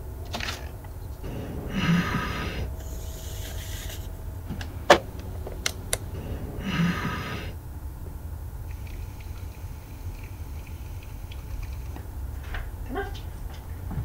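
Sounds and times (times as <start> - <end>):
breathy rasping sound: 1.2 - 12.0.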